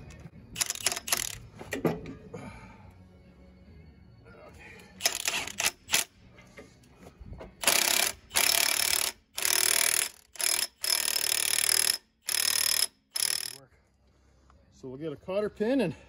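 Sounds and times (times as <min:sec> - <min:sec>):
impact wrench hammering: 0:05.0 - 0:06.1, 0:07.6 - 0:13.6.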